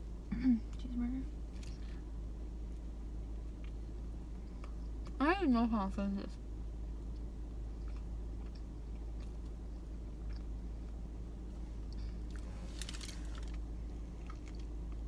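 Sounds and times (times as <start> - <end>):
steady low rumble: 0.0 - 15.0
person chewing with wet clicks: 2.6 - 5.2, 6.9 - 15.0.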